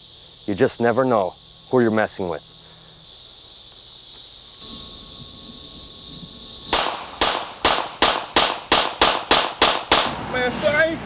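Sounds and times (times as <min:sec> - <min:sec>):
insects chirring: 0:00.0 - 0:11.0
pistol shots: 0:06.7 - 0:10.2.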